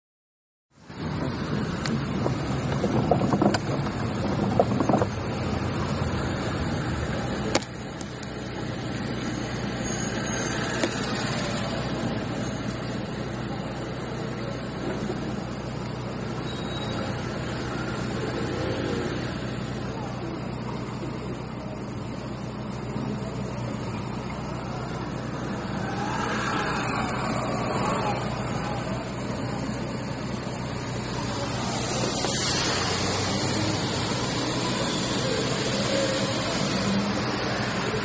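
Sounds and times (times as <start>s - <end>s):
car engine hum: 0.8s - 38.0s
tyres hissing on wet pavement: 8.1s - 38.0s.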